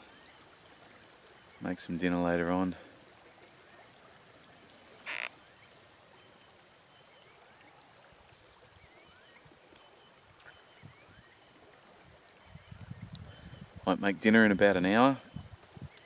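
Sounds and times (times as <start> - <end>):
flowing river: 0.0 - 16.0
small chirping animal calls: 5.1 - 5.3.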